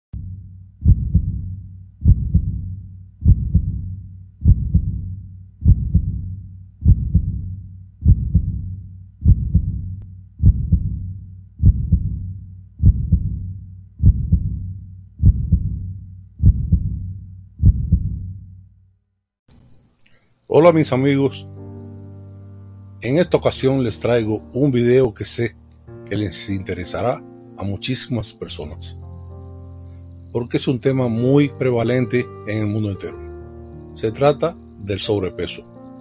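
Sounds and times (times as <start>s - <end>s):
heartbeat thumps: 0.2s - 18.4s.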